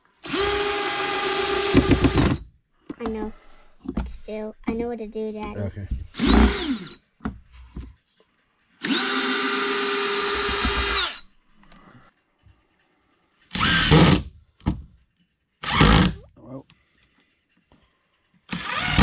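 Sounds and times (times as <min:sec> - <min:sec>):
cordless drill driving screw into wood: 0:00.2 - 0:02.5, 0:06.1 - 0:07.0, 0:08.8 - 0:11.2, 0:13.5 - 0:14.3, 0:15.6 - 0:16.2, 0:18.5 - 0:19.0.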